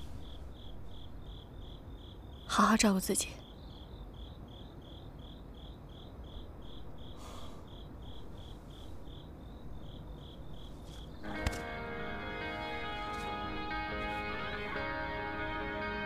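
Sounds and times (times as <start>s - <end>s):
crickets chirping: 0.0s - 15.9s
guitar music: 11.2s - 16.0s.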